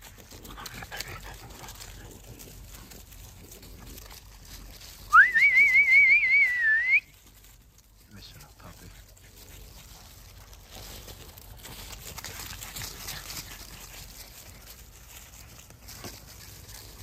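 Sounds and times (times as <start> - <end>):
person whistling warbling: 5.1 - 7.1.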